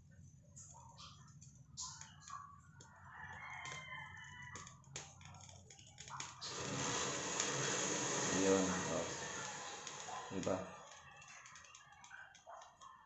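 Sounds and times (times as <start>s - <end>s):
burner flame rushing hiss: 6.3s - 11.0s.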